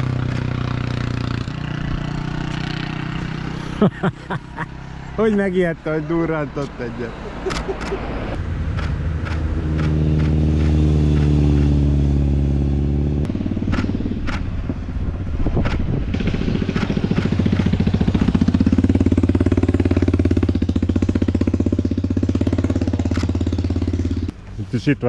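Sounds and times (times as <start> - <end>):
motorcycle engines: 0.0 - 25.0
sharp clicks: 7.5 - 8.0, 8.7 - 11.8, 13.7 - 14.5, 16.7 - 18.4, 23.0 - 23.4.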